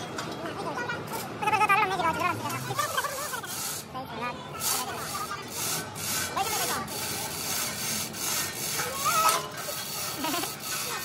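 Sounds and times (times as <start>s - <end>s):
scraping strokes: 2.8s - 3.9s, 4.6s - 11.0s.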